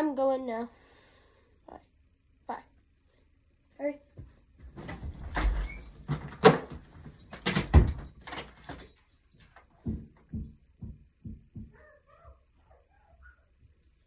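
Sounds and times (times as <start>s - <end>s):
rustling and shuffling: 3.6s - 11.2s
soft dull thumps: 9.8s - 11.8s.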